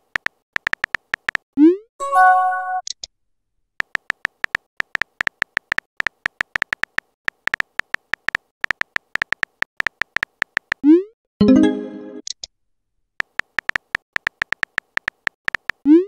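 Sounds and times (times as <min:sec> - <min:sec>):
keyboard typing clicks: 0:00.0 - 0:01.4, 0:03.8 - 0:10.8, 0:13.2 - 0:15.8.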